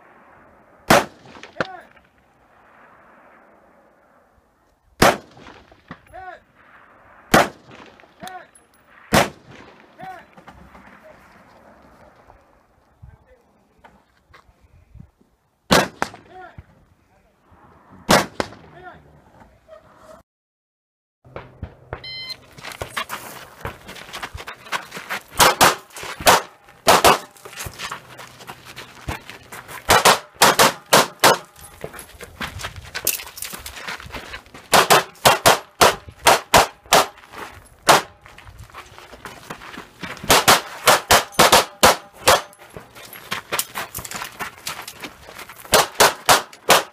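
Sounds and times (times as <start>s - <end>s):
rifle shots: 0.1s - 3.8s, 5.0s - 8.2s, 8.9s - 10.0s, 15.7s - 16.3s, 18.1s - 18.7s, 25.4s - 27.4s, 29.9s - 31.6s, 34.7s - 37.2s, 37.8s - 38.2s, 40.2s - 42.6s, 45.7s - 46.9s.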